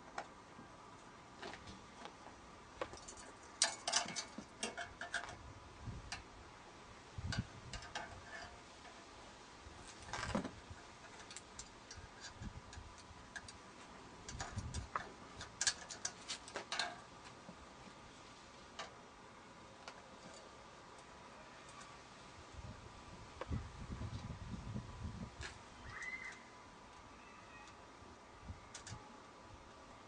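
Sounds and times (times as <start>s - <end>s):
metal parts clicking and tapping: 2.8s - 5.4s, 7.3s - 9.1s, 11.0s - 13.6s, 14.2s - 17.1s, 28.7s - 29.0s.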